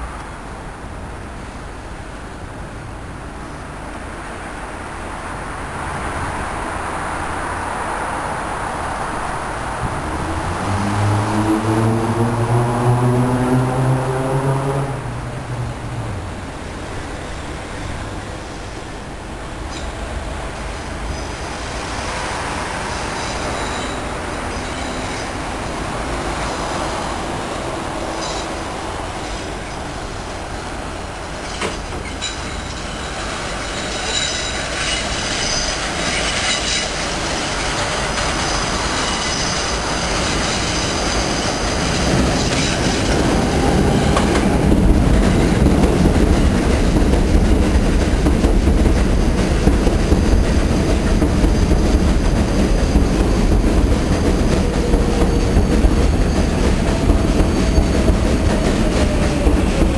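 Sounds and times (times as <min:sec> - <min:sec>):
train cars clattering rumble: 0:15.4 - 0:59.9
train wheels squealing: 0:17.0 - 0:18.9, 0:21.0 - 0:27.3, 0:28.0 - 0:30.4, 0:31.2 - 0:45.6, 0:49.5 - 0:59.9.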